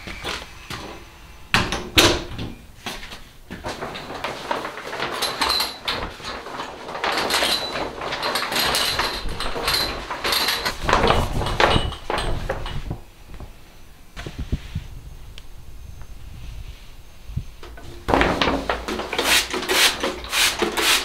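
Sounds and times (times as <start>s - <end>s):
plastic shower curtain rustling: 3.0s - 13.0s, 18.0s - 21.0s.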